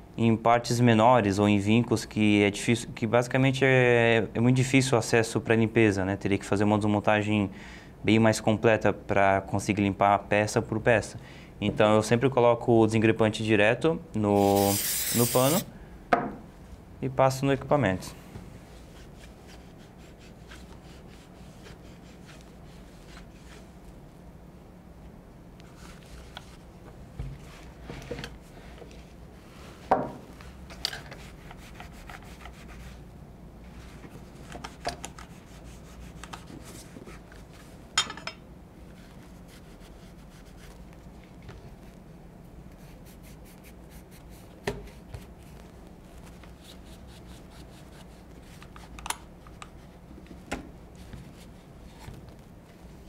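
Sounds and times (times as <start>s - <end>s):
cloth rubbing: 18.6s - 23.9s, 38.8s - 42.0s, 42.8s - 48.6s.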